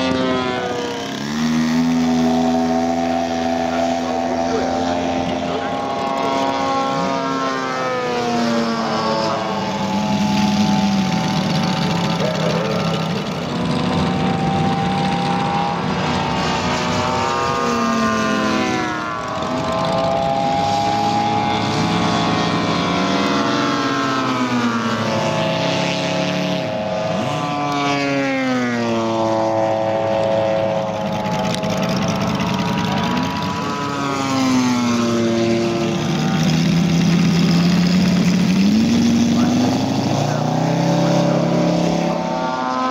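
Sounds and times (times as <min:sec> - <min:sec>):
model plane propeller engines: 0:00.0 - 0:42.9.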